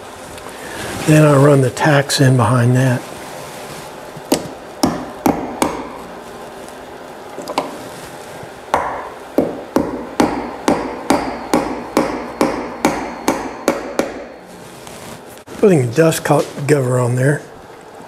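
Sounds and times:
hammer striking tacks into wood: 0:04.3 - 0:06.1, 0:08.8 - 0:14.4.

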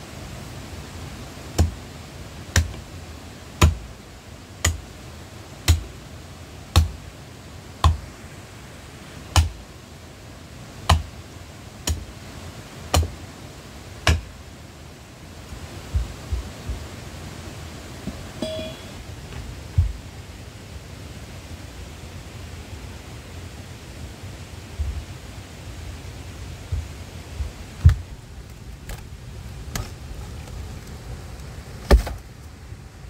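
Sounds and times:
tool striking wood: 0:05.7 - 0:05.9, 0:06.7 - 0:07.0, 0:09.4 - 0:09.6, 0:11.8 - 0:12.0, 0:12.9 - 0:13.1, 0:14.0 - 0:14.3.

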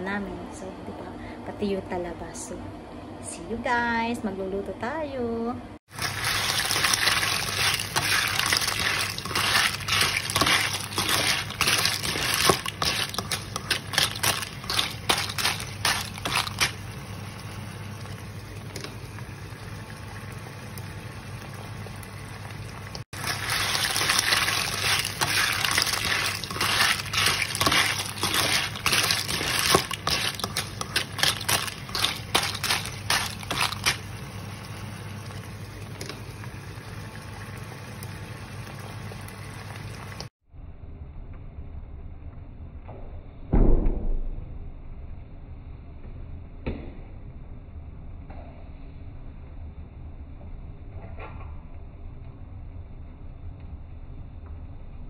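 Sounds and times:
shells clattering while stirred: 0:05.9 - 0:16.8, 0:23.2 - 0:34.1
clams sizzling in a wok: 0:05.9 - 0:20.0, 0:23.2 - 0:40.3.

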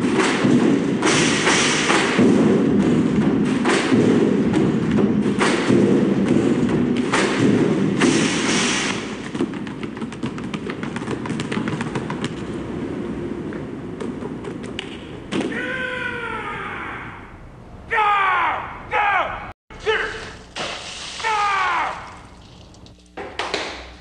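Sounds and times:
basketballs dribbled on pavement: 0:09.2 - 0:12.6
loud falling call: 0:15.5 - 0:20.3, 0:21.2 - 0:22.2.

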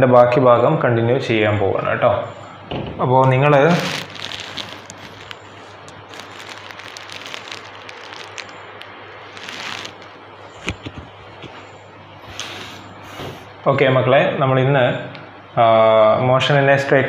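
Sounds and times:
microphone handling rustling: 0:03.5 - 0:11.6.

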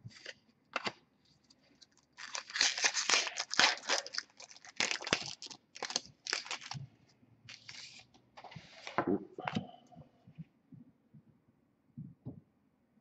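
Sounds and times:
foil wrapper tearing and crinkling: 0:01.9 - 0:06.8.

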